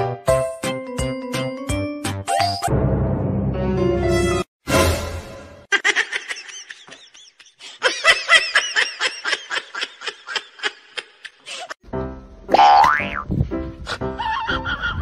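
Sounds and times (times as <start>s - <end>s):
high-pitched laughter: 5.7s - 11.8s, 13.9s - 15.0s.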